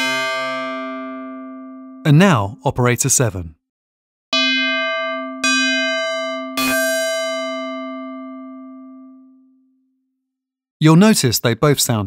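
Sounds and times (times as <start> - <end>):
synthesizer bell tone: 0.0 - 2.5, 4.4 - 9.6.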